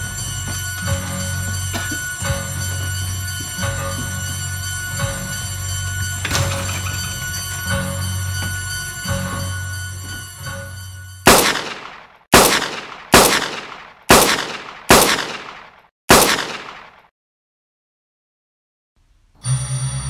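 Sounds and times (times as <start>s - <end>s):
suspenseful music: 0.0s - 11.9s
handgun shots with echo: 11.3s - 17.0s.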